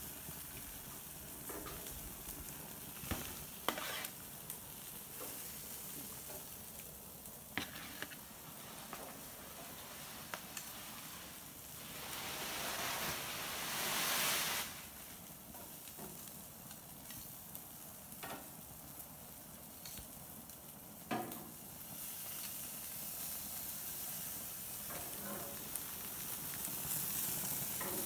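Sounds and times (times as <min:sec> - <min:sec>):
fish sizzling on a grill: 0:00.0 - 0:28.0.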